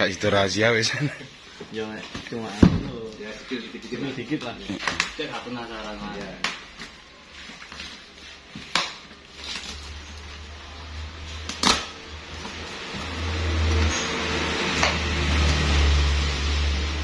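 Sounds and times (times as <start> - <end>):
cardboard sharp snaps: 11.4 - 12.0.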